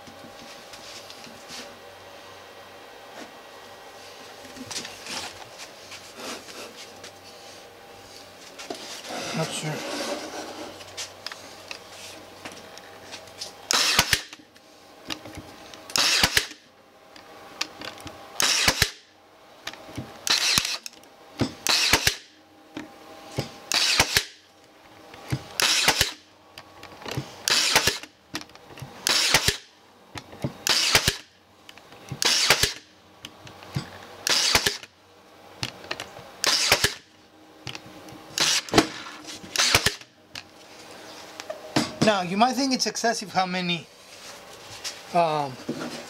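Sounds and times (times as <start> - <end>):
brad nailer firing: 13.7 - 14.4, 15.9 - 16.6, 18.4 - 19.1, 20.2 - 20.9, 21.5 - 22.3, 23.7 - 24.4, 25.6 - 26.2, 27.4 - 28.1, 29.0 - 29.7, 30.6 - 31.3, 32.2 - 32.9, 34.2 - 34.9, 36.4 - 37.1, 38.4 - 40.1.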